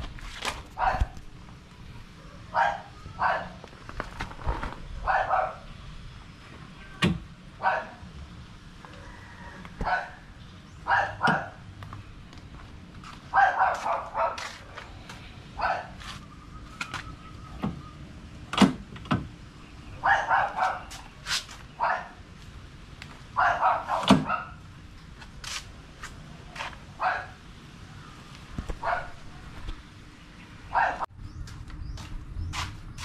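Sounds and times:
dog barking: 0:00.8 - 0:01.2, 0:02.2 - 0:03.6, 0:05.0 - 0:05.7, 0:07.6 - 0:08.0, 0:09.8 - 0:11.6, 0:13.3 - 0:14.8, 0:15.6 - 0:16.0, 0:20.0 - 0:21.0, 0:21.8 - 0:22.2, 0:23.4 - 0:24.6, 0:27.0 - 0:27.4, 0:28.8 - 0:29.2, 0:30.7 - 0:31.1.

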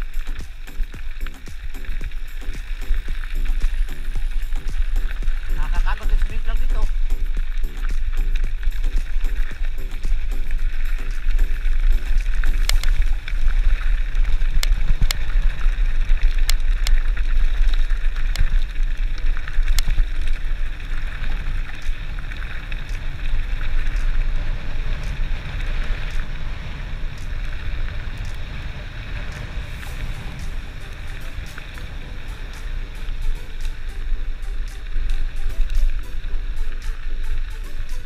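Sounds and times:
bike clicks and knocks: 0:00.0 - 0:26.4
bike tyres on gravel: 0:00.0 - 0:38.0
wind buffeting microphone: 0:00.0 - 0:38.0.

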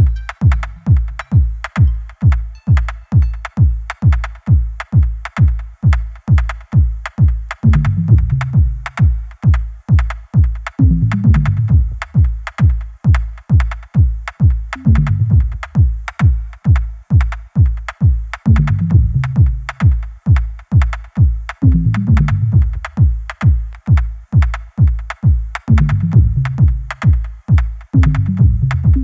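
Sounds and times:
deep bass line: 0:00.0 - 0:03.9, 0:07.6 - 0:09.2, 0:10.8 - 0:12.3, 0:14.8 - 0:15.9, 0:18.5 - 0:19.8, 0:21.6 - 0:23.2, 0:25.7 - 0:27.0, 0:28.0 - 0:29.0
drum machine kick beat: 0:00.0 - 0:29.0
hi-hat ticks: 0:00.0 - 0:29.0.

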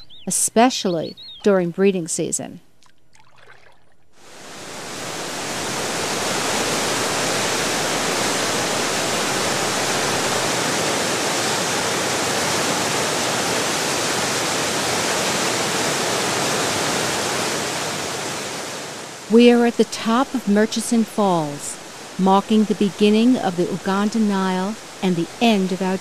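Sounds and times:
whitewater rushing over rocks: 0:04.4 - 0:19.3.

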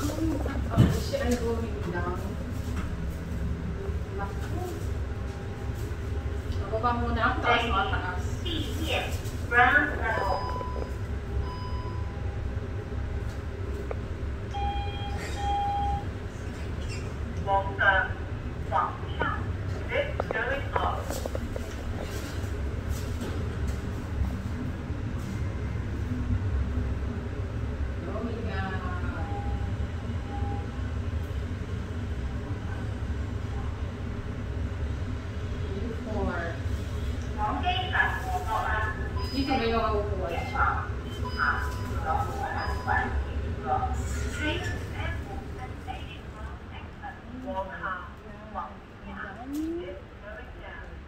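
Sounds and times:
lift low rumble: 0:00.0 - 0:51.0
electronic beeps: 0:14.5 - 0:16.1, 0:39.1 - 0:39.6, 0:40.4 - 0:43.0.

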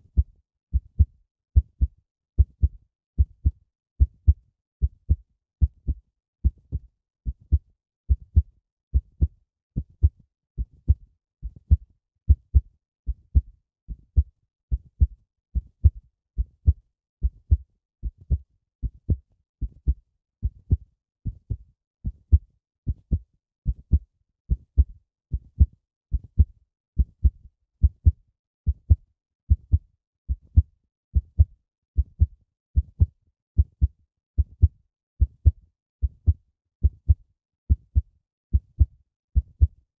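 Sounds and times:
heartbeat double thump: 0:31.4 - 0:32.1.

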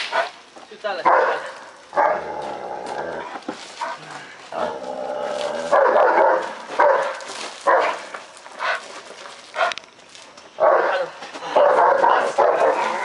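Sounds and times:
dog barking: 0:01.0 - 0:02.2, 0:05.7 - 0:08.8, 0:10.6 - 0:13.0.

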